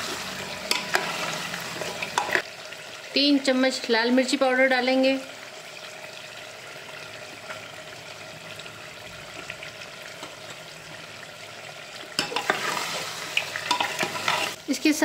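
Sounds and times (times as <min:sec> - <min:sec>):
meat frying in oil: 0:00.0 - 0:15.0
spoon stirring and scraping pot: 0:00.1 - 0:02.4, 0:12.2 - 0:14.6
spoon clinking against pot: 0:13.7 - 0:14.5.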